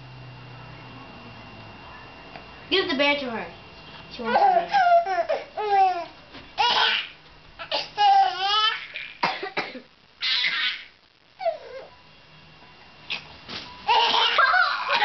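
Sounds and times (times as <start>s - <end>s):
baby laughing: 4.3s - 9.2s, 13.9s - 15.0s.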